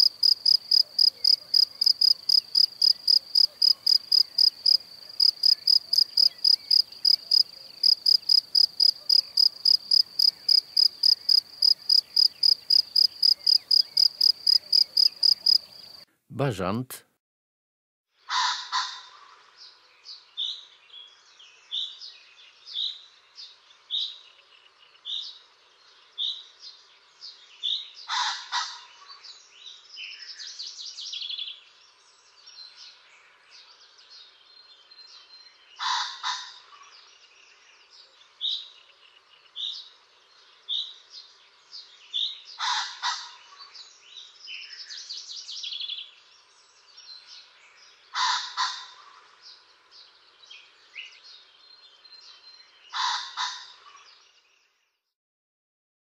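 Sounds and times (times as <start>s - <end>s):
small songbirds chirping: 0.0s - 16.7s, 19.4s - 28.1s, 28.8s - 55.1s
pheasant crowing: 52.9s - 53.7s.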